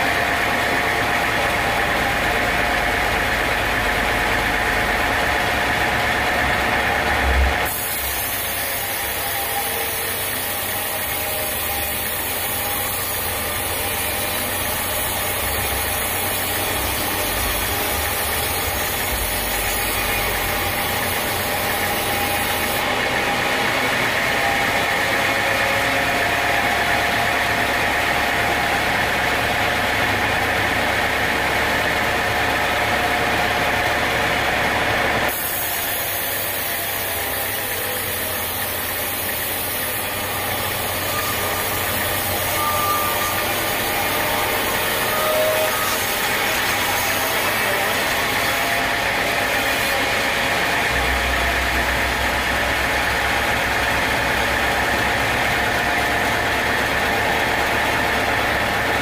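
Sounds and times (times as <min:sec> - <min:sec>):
band saw cutting log: 0:00.0 - 0:59.0.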